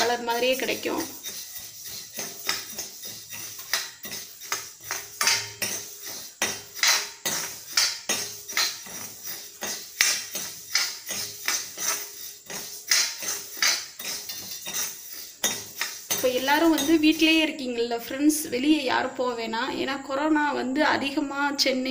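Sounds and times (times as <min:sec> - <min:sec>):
spoon scraping seeds in a metal pan: 0:00.0 - 0:17.5.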